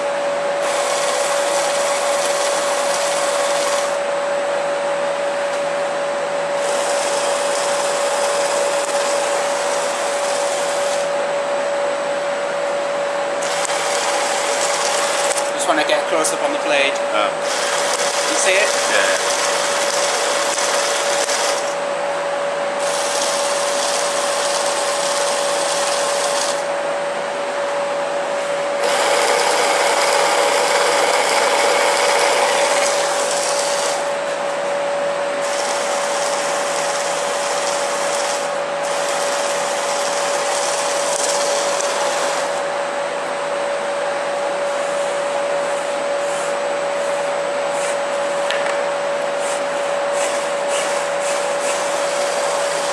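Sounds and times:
electric chainsaw running: 0:00.6 - 0:04.0, 0:06.6 - 0:11.1, 0:13.4 - 0:15.5, 0:17.4 - 0:21.8, 0:22.8 - 0:26.7, 0:28.8 - 0:34.2, 0:35.4 - 0:42.6, 0:50.8 - 0:52.9.

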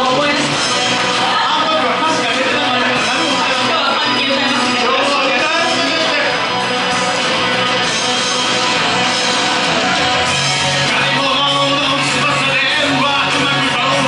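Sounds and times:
rock music with electric guitar: 0:00.0 - 0:14.0
person singing: 0:10.4 - 0:14.0.

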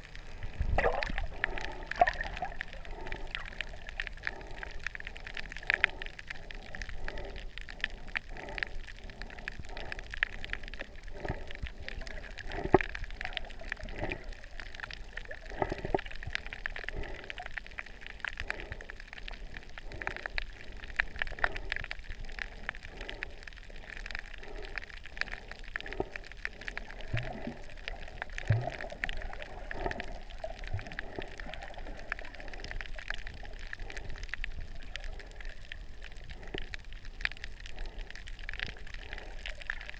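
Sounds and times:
muffled underwater hiss: 0:00.0 - 0:39.9
soft water sloshing: 0:00.3 - 0:04.6.

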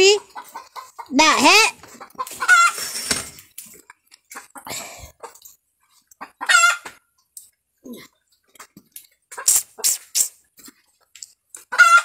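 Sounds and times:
chicken squawk: 0:02.0 - 0:02.9, 0:06.3 - 0:06.9, 0:11.7 - 0:12.0.

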